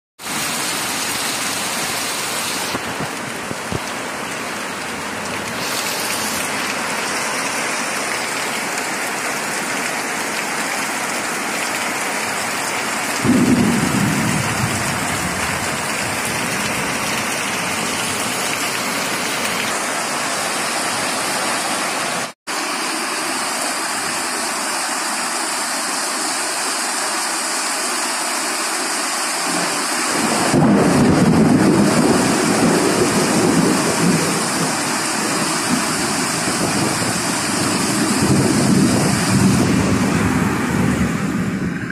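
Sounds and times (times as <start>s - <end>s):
heavy rain pouring: 0.2s - 41.9s
thunder rolling: 13.2s - 18.2s, 30.1s - 41.9s.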